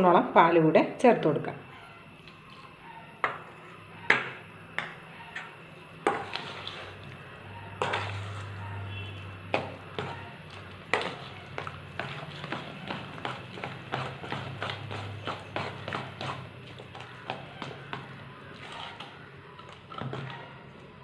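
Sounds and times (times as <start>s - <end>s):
metal spoon stirring batter: 4.8s - 21.0s.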